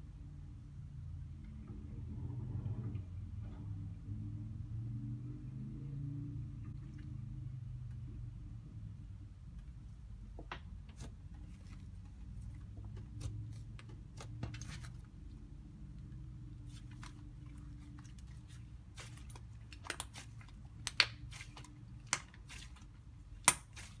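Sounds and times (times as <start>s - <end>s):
slime kneaded with clicks and pops: 16.7s - 24.0s.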